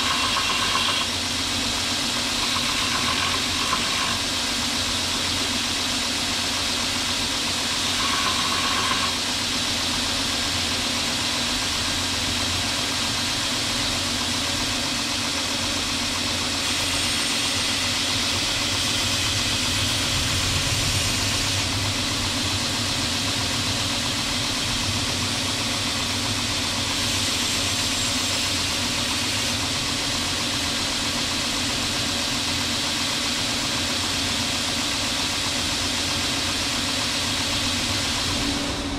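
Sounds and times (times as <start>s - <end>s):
belt grinder grinding steel: 0.0s - 5.4s, 7.0s - 9.5s.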